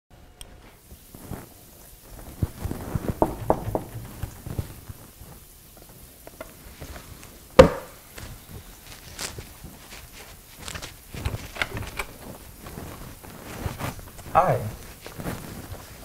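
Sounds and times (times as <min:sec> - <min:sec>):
rubber balloon squeaks and taps: 0:02.6 - 0:04.7
loud knock: 0:03.0 - 0:04.7.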